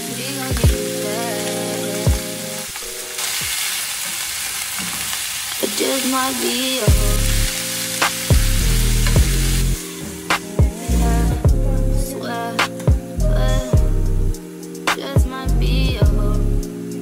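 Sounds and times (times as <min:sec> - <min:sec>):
food sizzling in a pan: 0:00.0 - 0:11.3
music with bass beat: 0:00.4 - 0:01.0, 0:01.9 - 0:02.4, 0:06.9 - 0:17.0.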